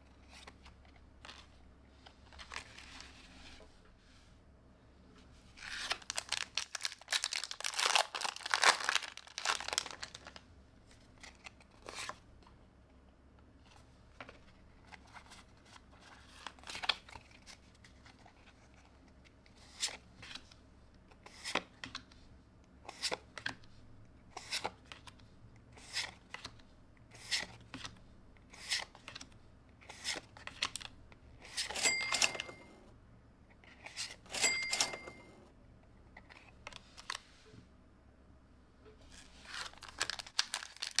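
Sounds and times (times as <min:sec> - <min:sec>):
foil wrapper crinkling and tearing: 0:05.8 - 0:10.4, 0:39.4 - 0:41.0.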